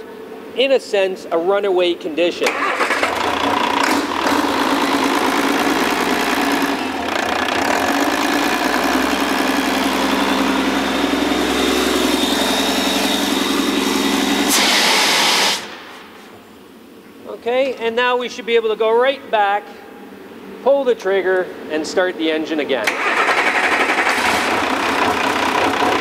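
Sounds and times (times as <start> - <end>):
diesel engine running at high revs: 2.5 - 15.6, 22.9 - 26.0
fire extinguisher blasting: 11.4 - 15.9.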